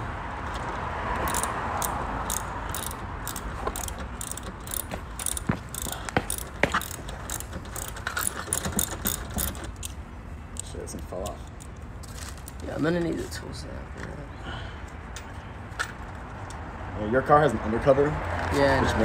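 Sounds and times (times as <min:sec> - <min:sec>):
ratchet wrench clicking: 0:01.2 - 0:10.0.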